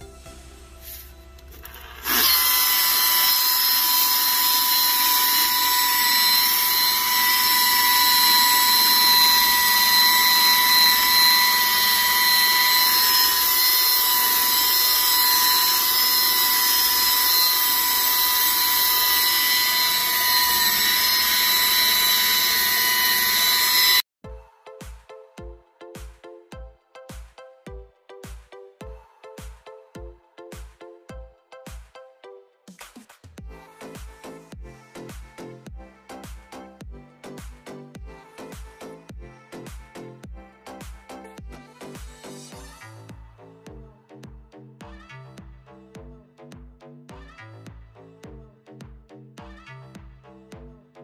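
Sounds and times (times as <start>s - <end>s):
rotary polisher whining: 1.4s - 24.1s.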